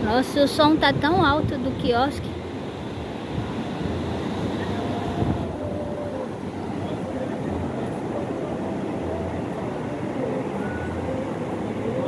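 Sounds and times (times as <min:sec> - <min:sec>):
surf washing onto beach: 0:00.0 - 0:12.0
wind rumbling on microphone: 0:00.0 - 0:12.0.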